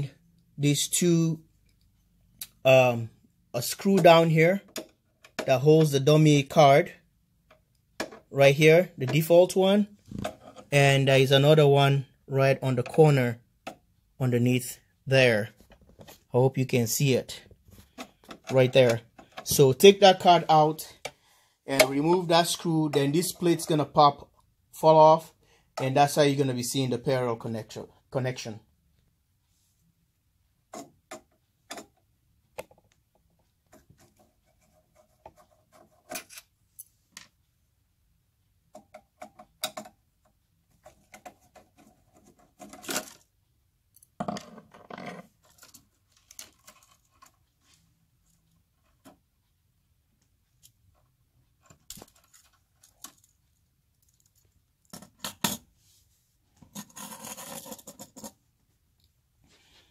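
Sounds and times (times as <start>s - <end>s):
screwdriver clicks and squeaky scrapes: 33.8s - 36.9s.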